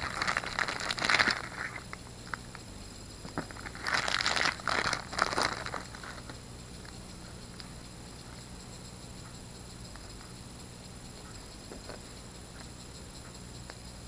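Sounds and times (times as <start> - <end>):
plastic bag crinkling: 0.0 - 2.0, 3.3 - 6.4.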